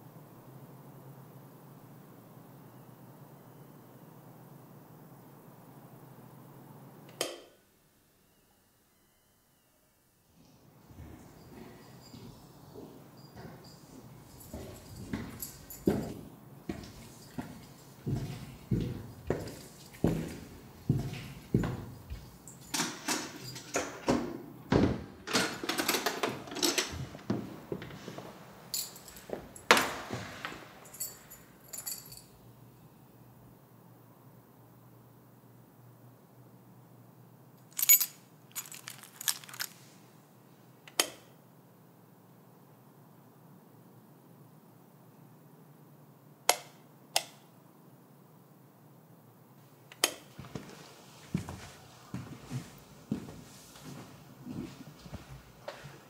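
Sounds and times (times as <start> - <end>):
keys jangling in a lock: 13.2 - 16.2, 21.2 - 24.0, 28.8 - 30.2, 30.8 - 32.3, 37.6 - 39.8.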